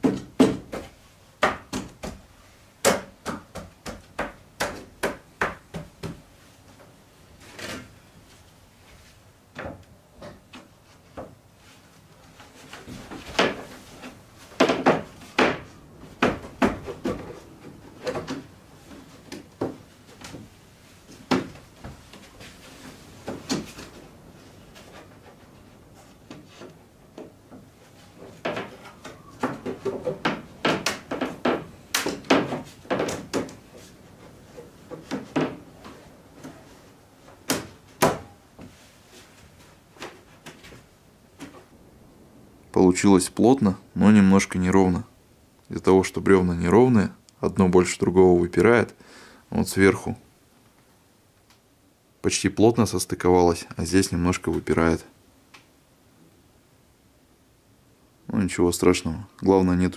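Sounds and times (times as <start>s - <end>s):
knocks on wooden boards: 0.0s - 6.3s, 14.5s - 17.4s, 28.3s - 33.6s, 34.9s - 35.7s.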